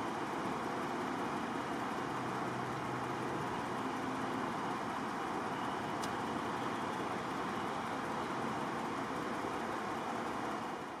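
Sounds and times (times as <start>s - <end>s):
distant highway traffic hiss: 0.0s - 11.0s.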